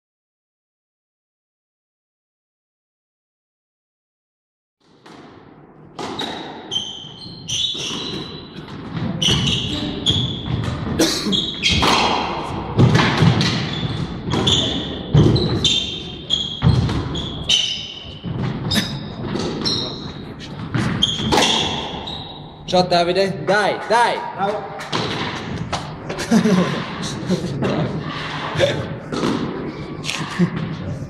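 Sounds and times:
sneakers squeaking on wooden floor: 0:06.0 - 0:22.7
squash ball cracking off rackets: 0:20.6 - 0:22.0.

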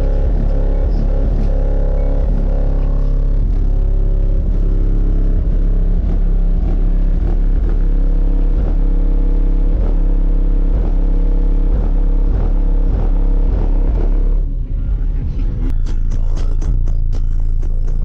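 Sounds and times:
bass-heavy music from car stereo: 0:00.0 - 0:18.0.

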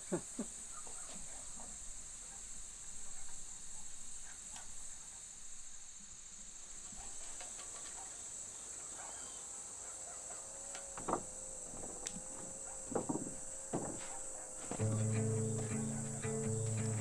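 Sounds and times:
crickets chirring: 0:00.0 - 0:17.0
steady held tone: 0:14.8 - 0:17.0.

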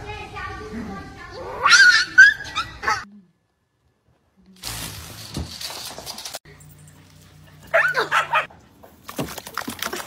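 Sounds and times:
dog yelping: 0:01.5 - 0:03.1, 0:07.7 - 0:08.5.

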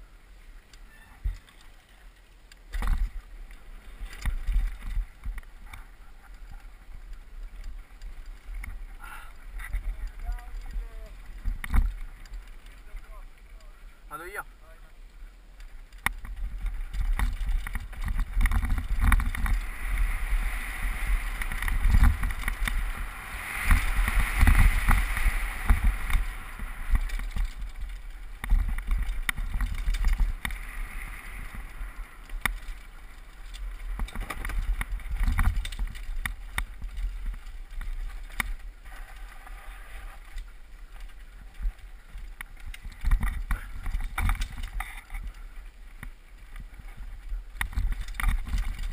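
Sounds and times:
bike rattling over bumps: 0:00.9 - 0:48.9
wind buffeting microphone: 0:15.7 - 0:48.9.

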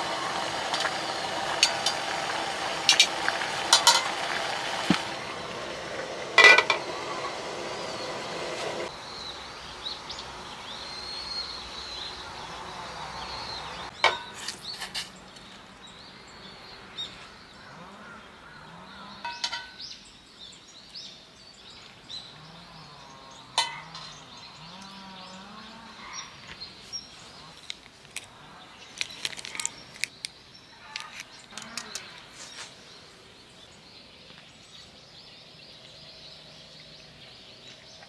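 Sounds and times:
steaming pan hiss: 0:00.0 - 0:08.9
birds chirping: 0:00.0 - 0:38.0
metal utensils clinking: 0:02.9 - 0:04.3, 0:06.4 - 0:06.8, 0:19.2 - 0:19.8, 0:23.6 - 0:23.9.

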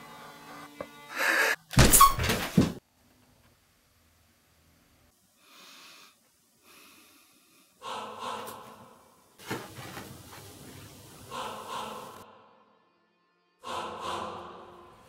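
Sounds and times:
woman breathing heavily: 0:01.1 - 0:01.7, 0:05.4 - 0:09.1.

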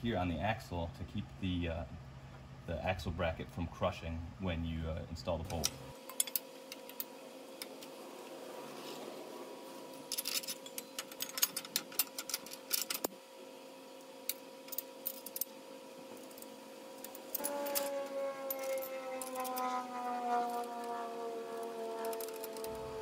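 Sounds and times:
steady background hum: 0:00.0 - 0:23.0
metal clicks and clinks: 0:10.1 - 0:13.1.

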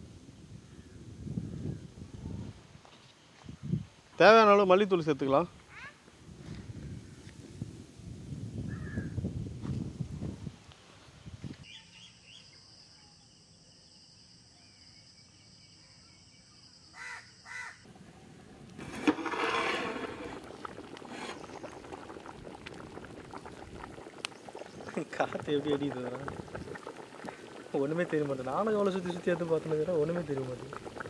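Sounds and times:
fire crackling: 0:17.9 - 0:31.0
curry bubbling in a pot: 0:18.7 - 0:31.0.

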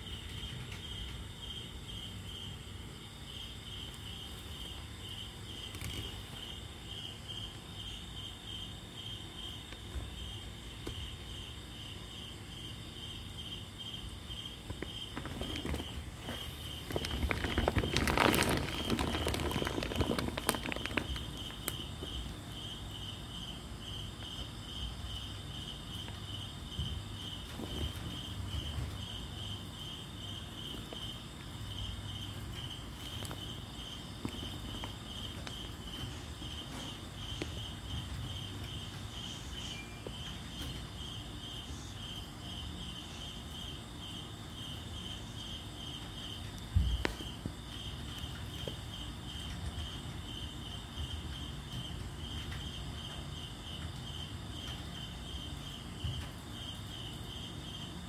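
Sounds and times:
cricket chirping: 0:00.0 - 0:58.0
rustling noise: 0:14.7 - 0:22.3, 0:26.8 - 0:29.3.

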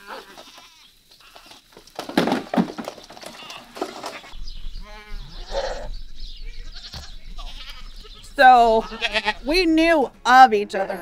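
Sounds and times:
goats bleating: 0:00.0 - 0:01.7, 0:03.2 - 0:05.9, 0:06.5 - 0:09.5
sharp knocks and clatter: 0:01.8 - 0:04.3.

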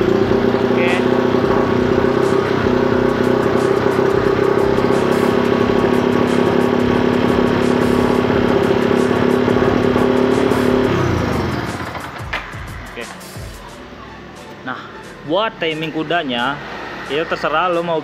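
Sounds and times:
motorcycle engine idling: 0:00.0 - 0:13.7.

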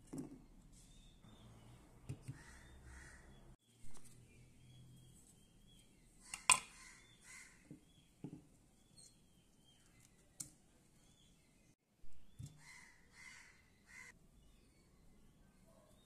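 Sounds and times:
faint birds calling: 0:00.8 - 0:16.0.

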